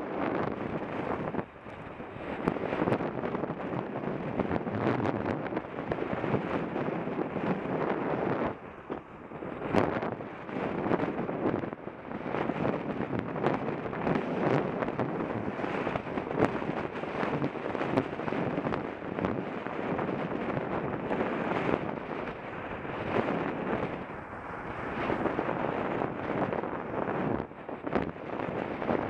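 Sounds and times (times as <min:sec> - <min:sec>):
wind buffeting microphone: 0:00.0 - 0:29.0
road traffic passing: 0:22.0 - 0:27.6.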